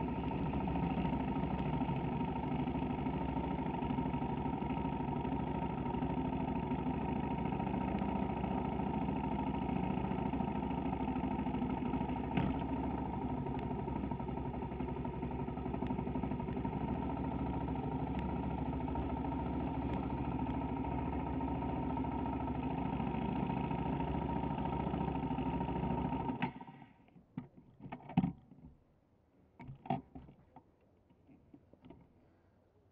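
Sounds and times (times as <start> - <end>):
go-kart engine running: 0.0 - 26.9.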